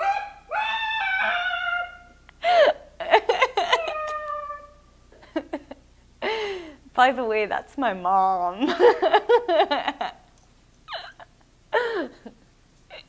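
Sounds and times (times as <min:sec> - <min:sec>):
woman laughing: 0:02.4 - 0:04.4, 0:05.2 - 0:06.6, 0:08.6 - 0:10.3, 0:10.9 - 0:13.0.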